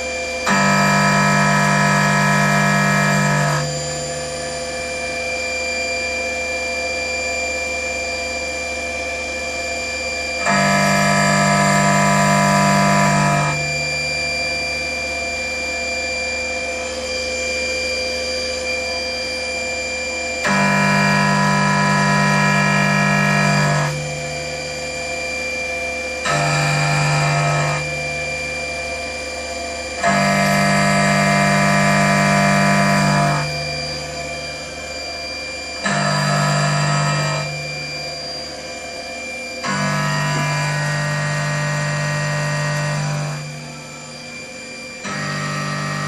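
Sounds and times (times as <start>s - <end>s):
machine spindle running: 0.0s - 4.6s, 10.4s - 13.6s, 20.1s - 46.0s
milling cutter cutting metal: 0.4s - 3.8s, 10.4s - 13.6s, 20.4s - 24.0s, 26.2s - 28.0s, 30.0s - 34.0s, 35.7s - 37.6s, 39.6s - 43.5s, 45.0s - 46.0s.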